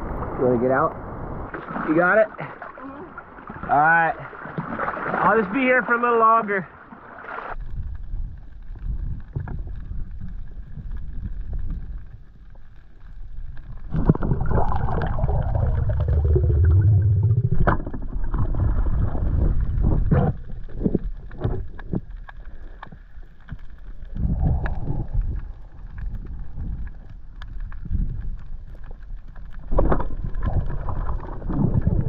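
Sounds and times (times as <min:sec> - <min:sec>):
muffled underwater water noise: 0:00.0 - 0:32.0
rumbling swell: 0:13.8 - 0:20.1.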